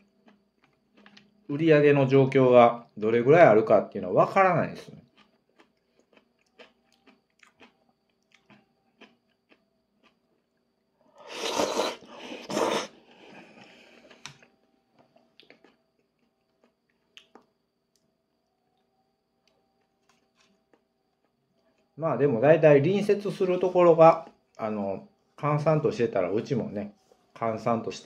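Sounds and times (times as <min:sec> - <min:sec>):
chewing and mouth clicks: 0:00.0 - 0:01.5, 0:05.0 - 0:18.1, 0:18.8 - 0:22.0
noisy noodle slurp: 0:11.2 - 0:14.3.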